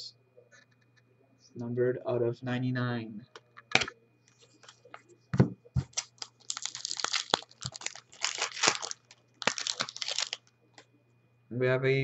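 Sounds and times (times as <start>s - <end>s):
foil wrapper tearing and crinkling: 5.8s - 10.5s.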